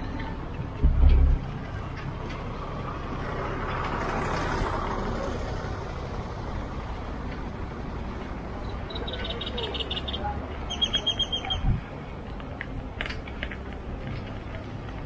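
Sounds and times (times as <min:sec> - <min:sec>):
steady low rumble: 0:00.0 - 0:03.2
road vehicle passing: 0:00.0 - 0:15.0.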